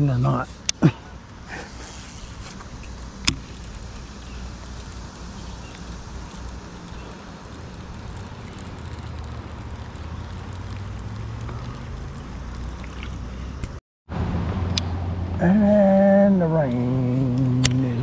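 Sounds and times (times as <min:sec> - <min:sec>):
low humming: 0:00.0 - 0:18.0
faint ticking: 0:02.8 - 0:13.8
fishing reel click: 0:03.2 - 0:13.2.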